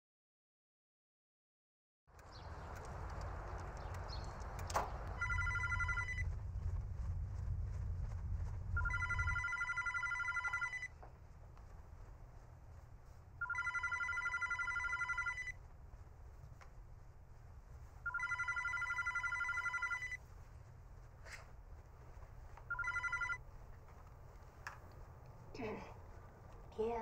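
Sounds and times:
low outdoor rumble: 0:02.1 - 0:27.0
telephone ringing: 0:05.2 - 0:06.2, 0:08.8 - 0:10.9, 0:13.4 - 0:15.6, 0:18.0 - 0:20.2, 0:22.7 - 0:23.4.

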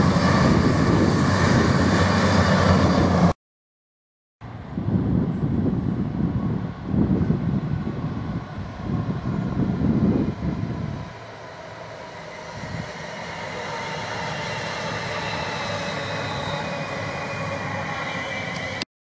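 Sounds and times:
electric train passing: 0:00.0 - 0:03.3, 0:04.5 - 0:18.8
low buffeting rumble: 0:04.4 - 0:11.8
train motor whine: 0:15.1 - 0:18.8.

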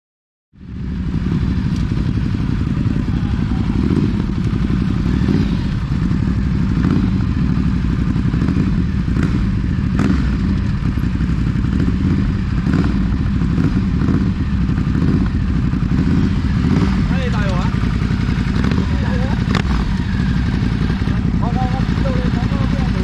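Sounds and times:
motorcycle engine rumbling: 0:00.6 - 0:23.0
sharp clicks: 0:19.4 - 0:20.2.

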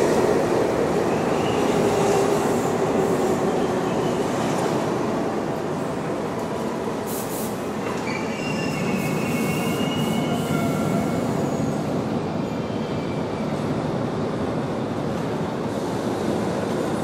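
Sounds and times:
subway train rumble: 0:00.0 - 0:17.0
high-pitched wheel squeals: 0:08.0 - 0:11.8.

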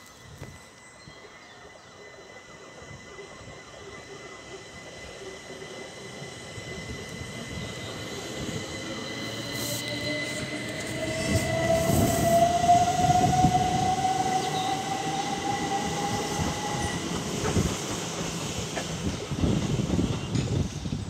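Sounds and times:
train motor whine rising: 0:00.1 - 0:19.1
wheels clattering on rails: 0:17.0 - 0:21.0.

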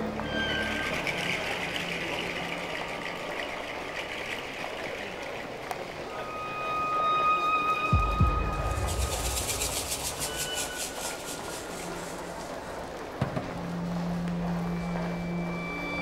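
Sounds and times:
subway station rushing noise: 0:00.0 - 0:16.0
train pulling in: 0:06.1 - 0:16.0.

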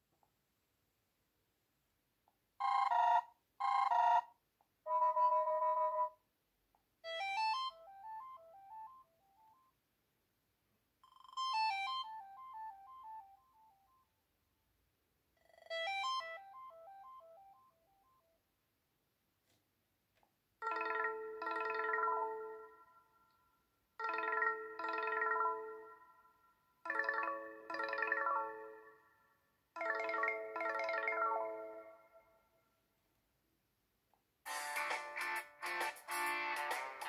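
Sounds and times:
phone ringtone melodies: 0:07.1 - 0:09.6, 0:11.0 - 0:13.9, 0:15.7 - 0:17.8, 0:20.6 - 0:23.2, 0:24.0 - 0:29.1, 0:29.8 - 0:32.4.

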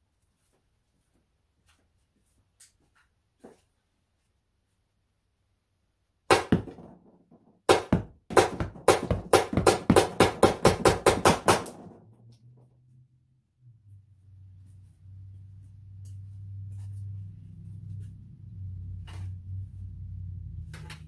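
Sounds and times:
rounds smacking cardboard box: 0:06.3 - 0:12.0.

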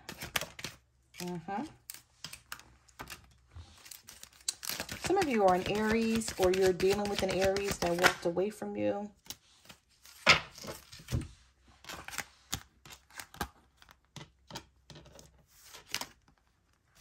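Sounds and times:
cards handled on a table: 0:02.2 - 0:08.2.

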